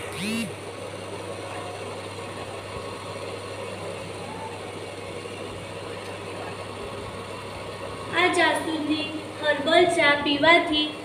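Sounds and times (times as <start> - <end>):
cooktop low hum: 0.0 - 11.0.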